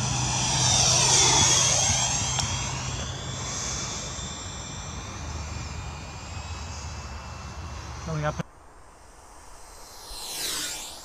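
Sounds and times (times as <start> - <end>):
model jet fan whining: 0.0 - 8.5.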